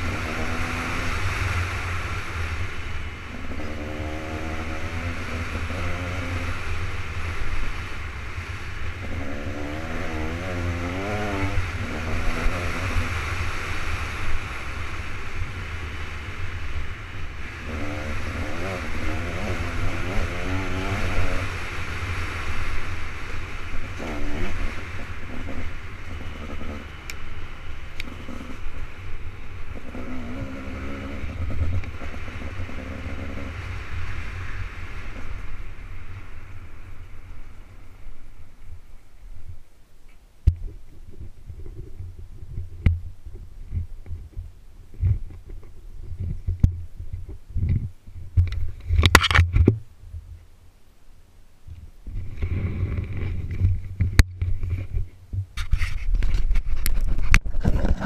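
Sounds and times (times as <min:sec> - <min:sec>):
dirt bike engine revving: 0:00.0 - 0:38.1.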